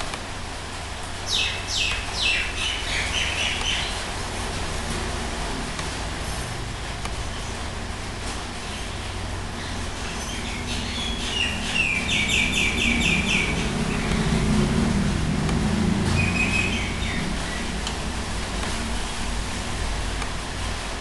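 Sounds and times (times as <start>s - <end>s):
steady low hum: 0.0s - 21.0s
high chirping: 1.3s - 4.0s, 9.6s - 14.3s, 16.1s - 17.8s.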